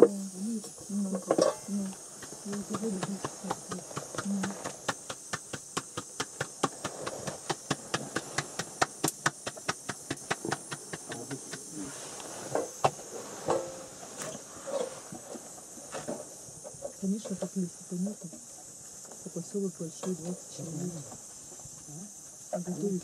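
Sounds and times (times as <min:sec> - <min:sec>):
steady hiss: 0:00.0 - 0:23.0
hands slapping dough: 0:02.2 - 0:11.8.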